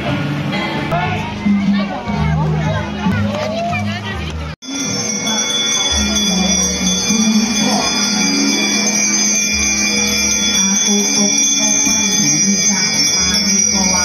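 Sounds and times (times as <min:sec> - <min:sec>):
music: 0:00.0 - 0:14.0
brass hand bells ringing: 0:04.6 - 0:14.0.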